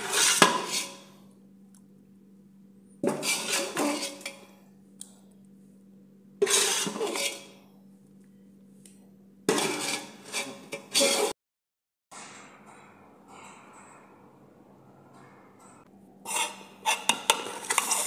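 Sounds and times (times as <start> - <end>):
spoon scraping and clinking bowl: 3.0 - 4.5, 6.4 - 7.6, 16.3 - 18.0
faint steady hum: 7.3 - 9.5.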